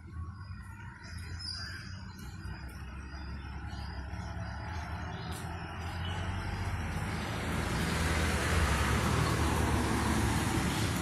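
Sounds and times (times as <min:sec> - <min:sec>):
vehicle driving past: 0:03.0 - 0:11.0.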